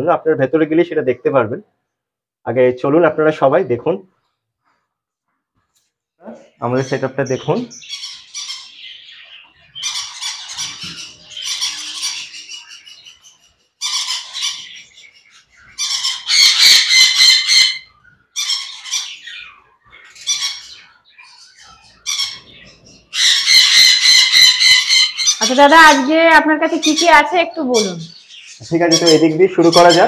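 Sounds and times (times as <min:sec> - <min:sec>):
parrots squawking: 0:06.3 - 0:30.0.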